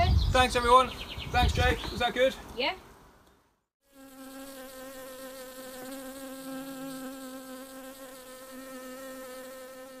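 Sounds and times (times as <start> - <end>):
bees buzzing: 3.8 - 10.0.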